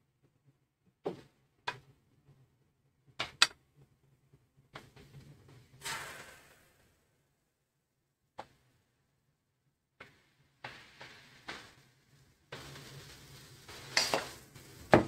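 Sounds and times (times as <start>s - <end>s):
batter sizzling in frying pan: 10.0s - 15.0s.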